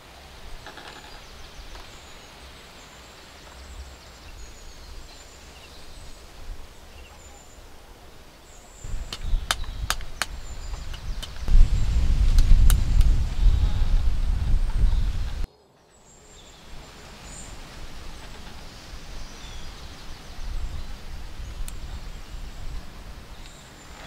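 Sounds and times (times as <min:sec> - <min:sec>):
low rumble: 0:08.9 - 0:15.5
sharp clicks: 0:09.0 - 0:11.6.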